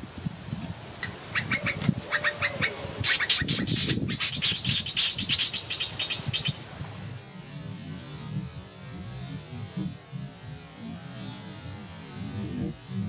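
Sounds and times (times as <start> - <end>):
birds harsh chattering: 1.0 - 6.6
small birds chirping: 1.0 - 6.6.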